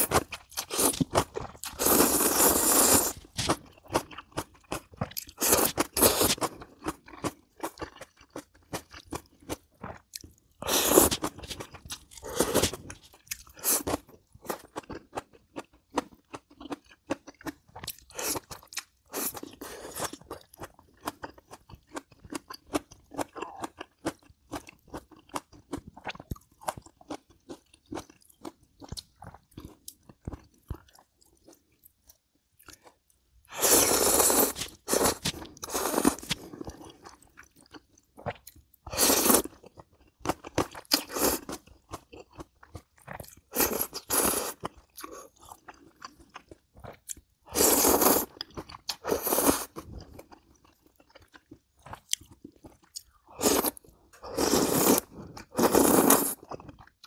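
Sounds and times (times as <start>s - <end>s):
chewing with wet mouth clicks: 14.5s - 19.6s.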